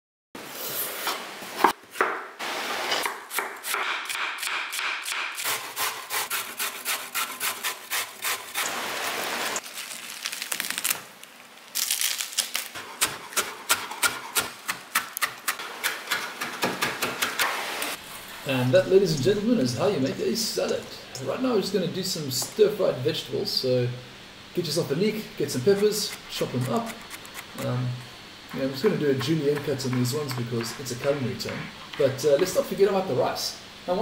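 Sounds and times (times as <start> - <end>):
knife chopping on wooden board: 3.0 - 5.6.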